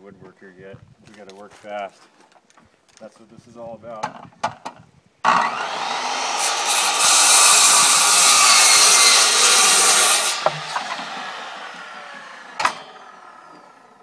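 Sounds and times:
circular saw cutting wood: 0:05.3 - 0:14.0
saw winding down: 0:05.3 - 0:14.0.

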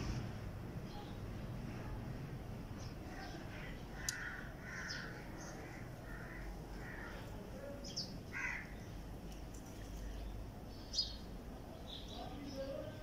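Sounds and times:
bird calling: 0:03.2 - 0:09.0.

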